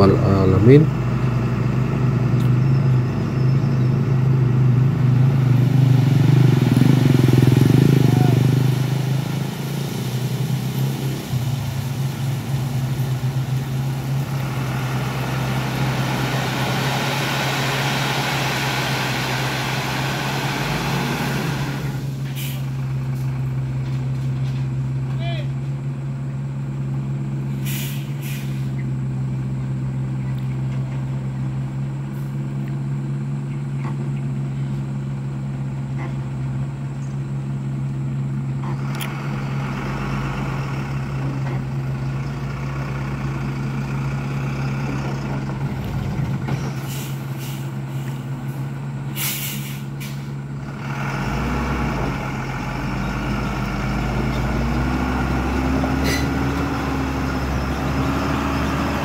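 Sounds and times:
diesel truck engine running: 0.0s - 59.0s
short sharp air hisses: 22.2s - 22.7s, 27.6s - 28.8s, 49.1s - 50.3s.

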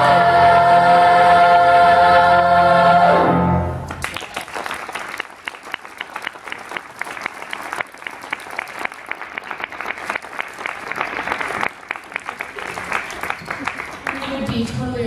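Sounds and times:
children's choir singing: 0.0s - 3.7s
audience applauding: 3.9s - 14.8s.

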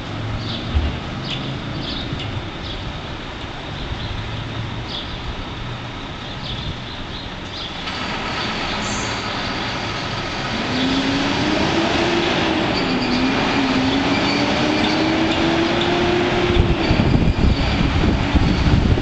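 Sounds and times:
street traffic: 0.0s - 19.0s
truck diesel engine: 7.3s - 19.0s.

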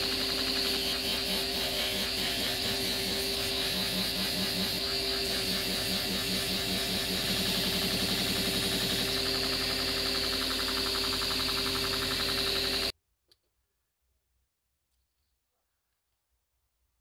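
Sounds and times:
belt grinder running: 0.0s - 12.9s.

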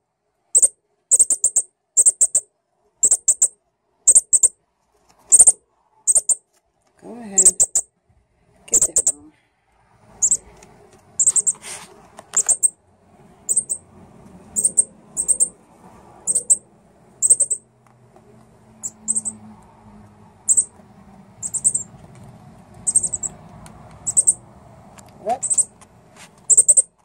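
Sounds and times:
high-pitched bird chip calls: 0.6s - 4.6s, 5.3s - 6.4s, 7.4s - 7.9s, 8.7s - 9.2s, 10.2s - 10.5s, 11.2s - 11.6s, 12.4s - 12.8s, 13.4s - 13.9s, 14.5s - 15.6s, 16.2s - 17.7s, 18.8s - 19.4s, 20.4s - 20.8s, 21.4s - 21.9s, 22.8s - 23.4s, 24.0s - 24.4s, 25.3s - 25.7s, 26.4s - 27.0s.

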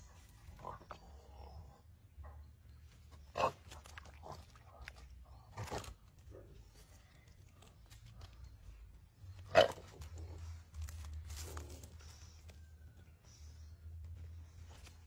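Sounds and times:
faint wet crunching: 3.2s - 13.0s.

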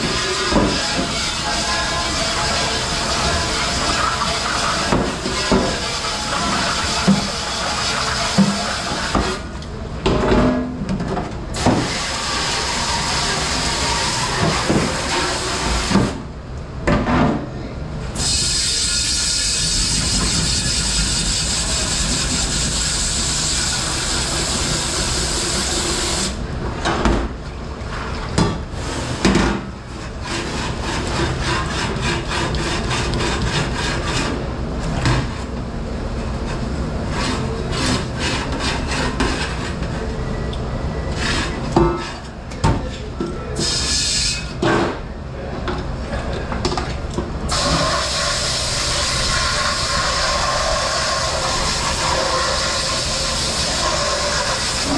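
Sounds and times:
spraying water hiss: 47.5s - 54.9s.

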